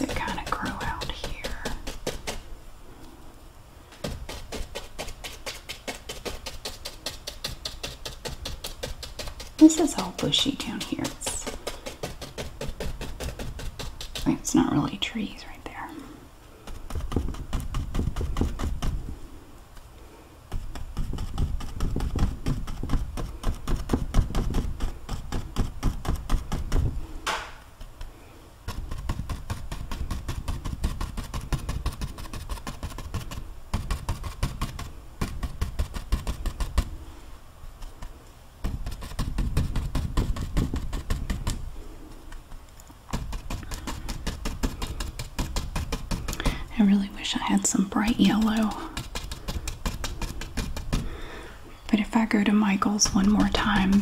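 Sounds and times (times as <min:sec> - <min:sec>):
paintbrush dabbing on canvas: 0:00.0 - 0:02.6, 0:03.9 - 0:19.4, 0:20.5 - 0:37.2, 0:37.8 - 0:54.0.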